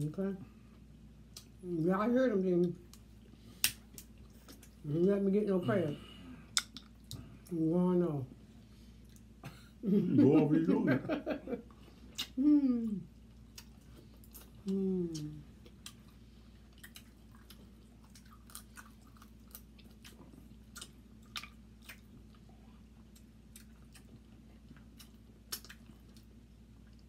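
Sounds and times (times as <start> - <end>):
wet eating smacks and clicks: 2.9 - 4.8, 6.5 - 7.3, 12.2 - 12.4, 13.5 - 22.4, 23.1 - 27.0.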